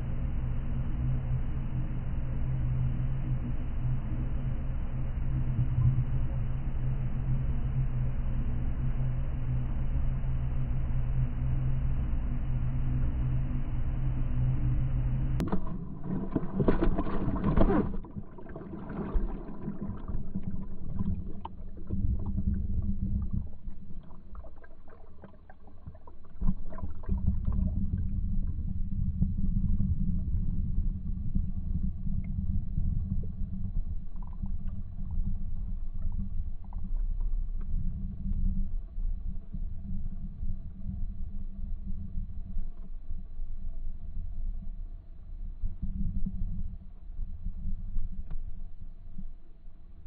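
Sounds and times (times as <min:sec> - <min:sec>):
boat engine rumble underwater: 0:00.0 - 0:50.0
underwater bubbles rushing: 0:15.4 - 0:44.8.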